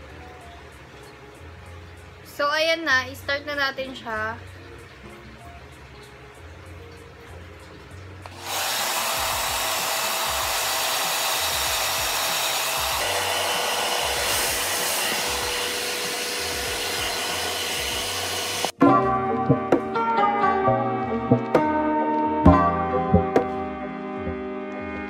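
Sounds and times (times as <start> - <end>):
hair dryer blowing: 8.2 - 18.8.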